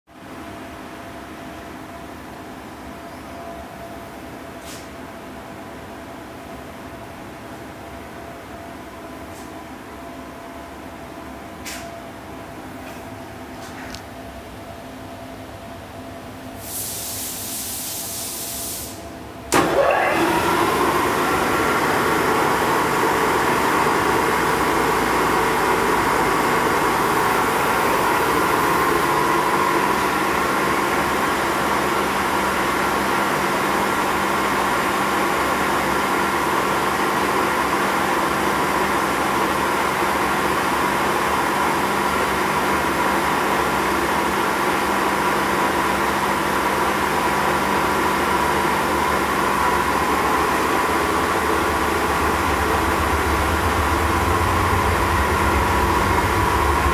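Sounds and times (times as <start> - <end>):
steady machine whine: 19.2 - 56.9
milling machine hum: 19.5 - 34.5, 47.6 - 56.9.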